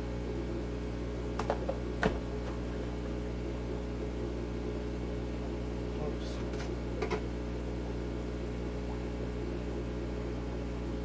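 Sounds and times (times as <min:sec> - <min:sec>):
aquarium equipment humming: 0:00.0 - 0:11.0
plastic tub knock: 0:01.4 - 0:02.2.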